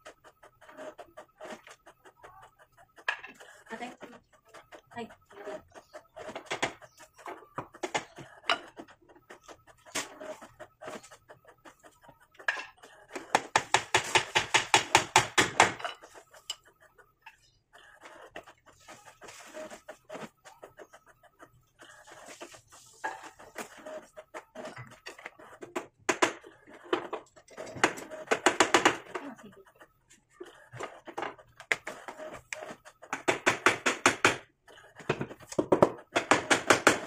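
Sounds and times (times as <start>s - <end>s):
hammer driving nails into wood: 13.3s - 15.9s, 33.1s - 34.4s, 35.5s - 37.0s.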